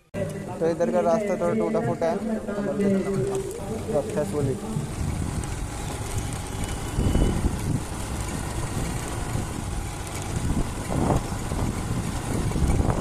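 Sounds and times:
engine and road rumble: 0.0 - 13.0
wind on microphone: 3.1 - 13.0.

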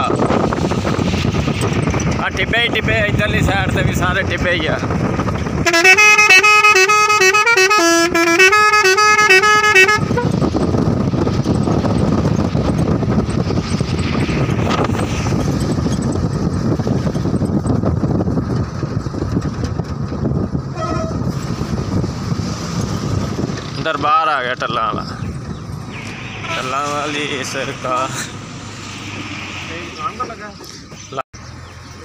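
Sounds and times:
moving vehicle running noise: 0.0 - 32.0
wind: 0.0 - 32.0
horn toot: 5.6 - 10.4, 20.7 - 21.4, 25.9 - 28.1
musical vehicle horn tune: 5.6 - 10.4, 20.7 - 21.2, 25.9 - 26.9.

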